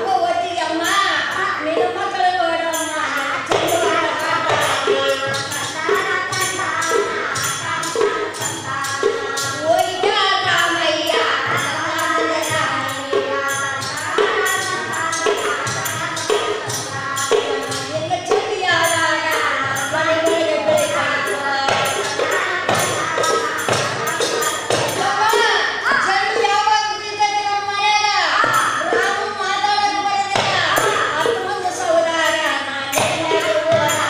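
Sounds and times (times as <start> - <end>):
barrel drums beating: 1.0 - 26.8.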